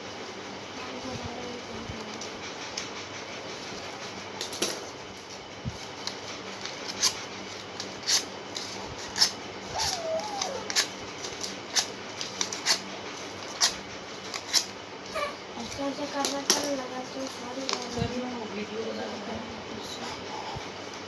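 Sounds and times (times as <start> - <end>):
scissors snipping paper: 6.0 - 14.7.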